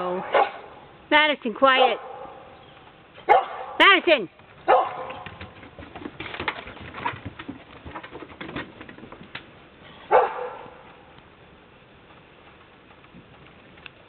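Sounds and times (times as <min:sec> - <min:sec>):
dog barking: 0:00.2 - 0:00.7, 0:01.8 - 0:02.5, 0:03.2 - 0:03.8, 0:04.7 - 0:05.2, 0:10.1 - 0:10.8.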